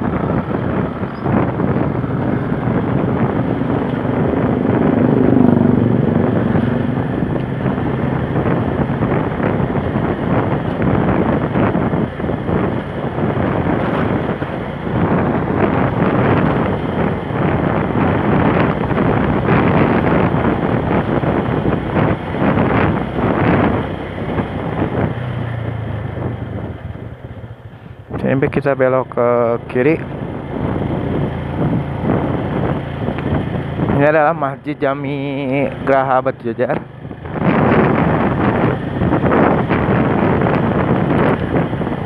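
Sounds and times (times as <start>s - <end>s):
motorcycle engine running: 0.0s - 42.0s
wind buffeting microphone: 0.0s - 42.0s
car passing: 1.8s - 9.7s.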